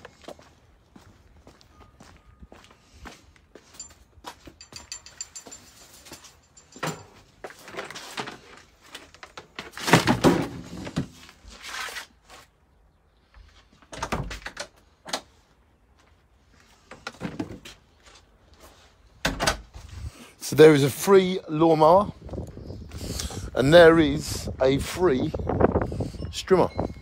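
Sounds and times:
rustling and scraping: 3.6 - 12.6
knocks and clunks of clutter: 3.8 - 11.2, 16.9 - 17.8.

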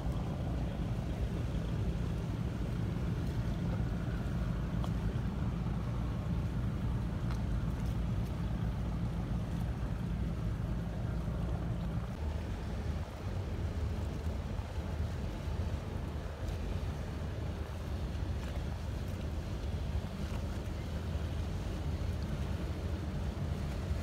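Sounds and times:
boat engine rumbling: 0.0 - 24.0
wind and water hiss: 0.0 - 24.0.

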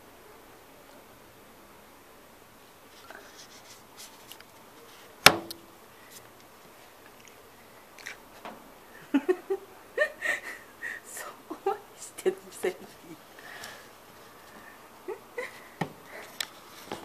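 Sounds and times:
dog mouth smacking: 8.0 - 8.2.

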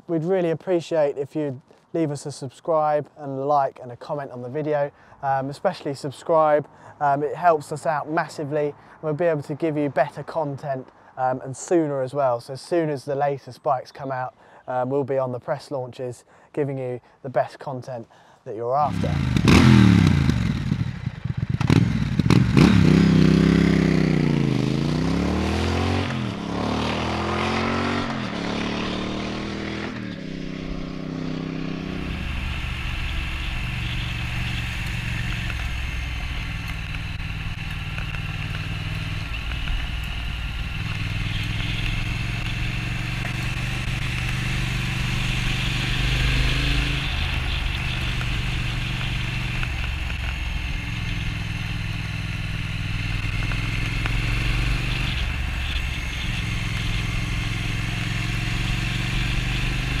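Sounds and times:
motorcycle engine running: 18.9 - 60.0.

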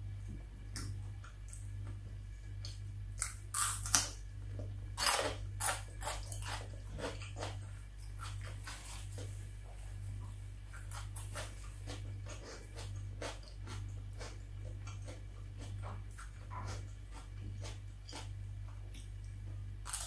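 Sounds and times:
low steady hum: 0.0 - 20.0
crunchy chewing: 0.7 - 20.0
crunchy bites into pepper: 3.2 - 4.2, 5.0 - 6.6.

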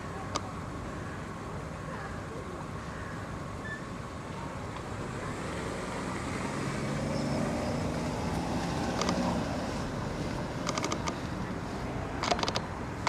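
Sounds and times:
road traffic rumble: 0.0 - 13.0
vehicle passing: 4.9 - 13.0.

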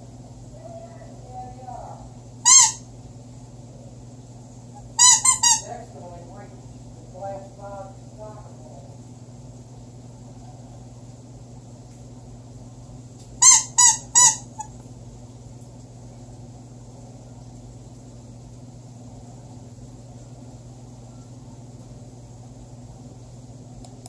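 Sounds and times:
steady low hum: 0.0 - 24.0
squeaky toy squeaks: 2.5 - 2.8, 5.0 - 5.7, 13.4 - 14.5.

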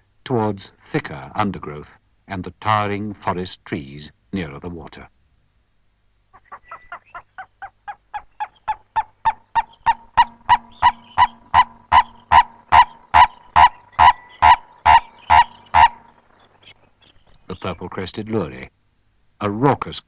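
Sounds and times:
turaco croaking call: 6.3 - 18.0.

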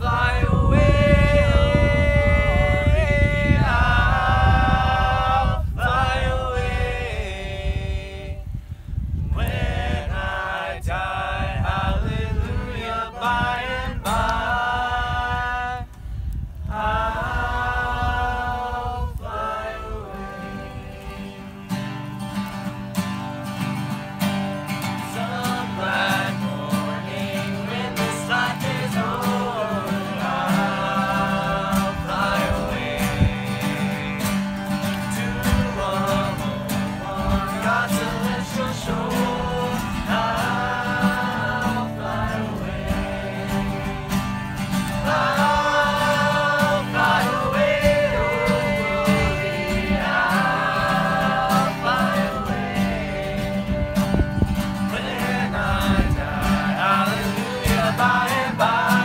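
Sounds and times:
group of voices singing in harmony: 0.0 - 16.0, 16.6 - 21.8, 24.6 - 59.0
acoustic guitars strumming: 16.9 - 59.0.

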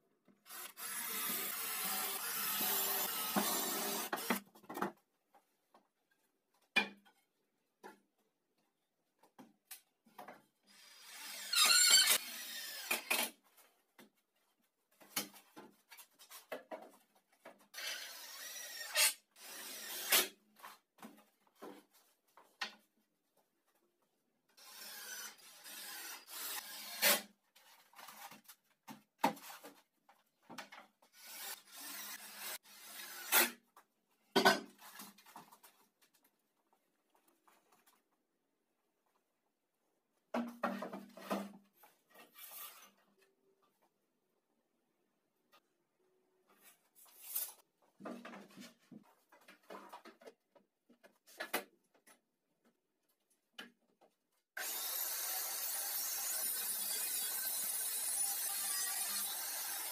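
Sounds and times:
cordless drill boring and driving screws: 0.5 - 4.4, 10.7 - 13.4, 17.8 - 20.3, 24.6 - 27.2, 31.2 - 33.5, 54.6 - 59.9.

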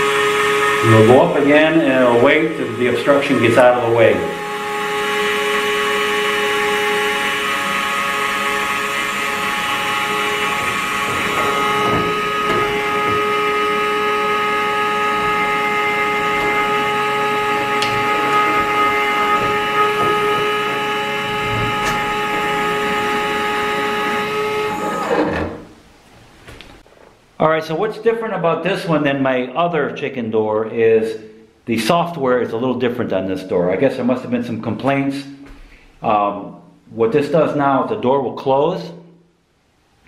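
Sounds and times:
electric motor whining: 0.0 - 25.7.

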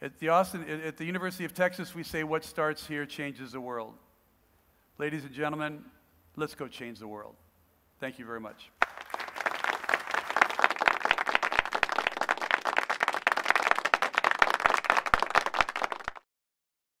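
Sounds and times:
audience applauding: 8.8 - 16.2.

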